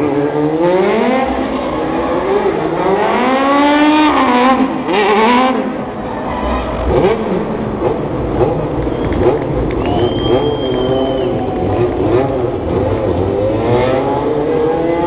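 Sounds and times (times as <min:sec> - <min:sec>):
car engine revving: 0:06.7 - 0:15.0.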